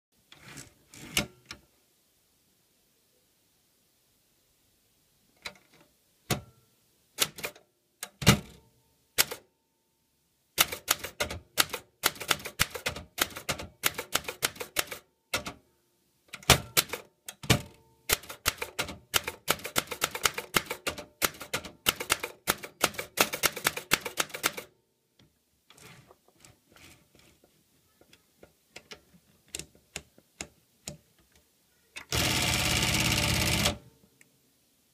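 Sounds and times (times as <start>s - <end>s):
typewriter keystrokes: 7.2s - 8.6s, 9.2s - 9.4s, 10.6s - 15.6s, 16.4s - 24.7s, 32.1s - 33.8s.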